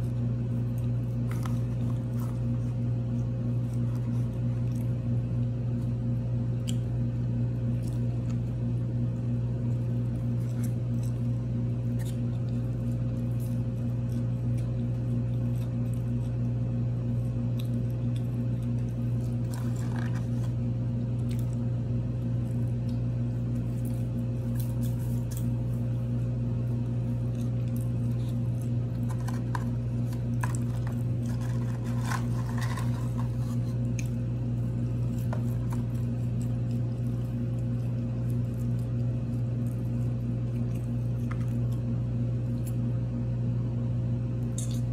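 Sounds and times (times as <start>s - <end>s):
steady low hum: 0.0s - 44.9s
person eating: 9.7s - 42.8s
paper packaging crinkling: 28.6s - 33.9s.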